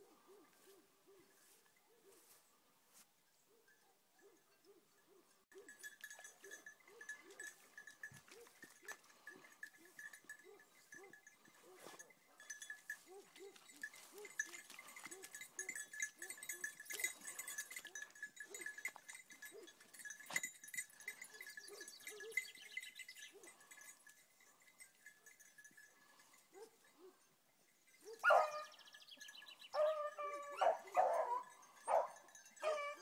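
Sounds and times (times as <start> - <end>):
hounds yelping: 4.2 - 12.1, 12.9 - 20.0, 21.1 - 23.7, 28.0 - 28.8, 29.7 - 33.0.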